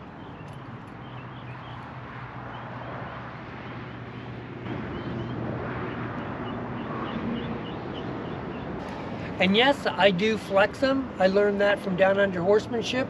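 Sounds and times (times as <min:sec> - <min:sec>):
small birds chirping: 0:00.0 - 0:05.4.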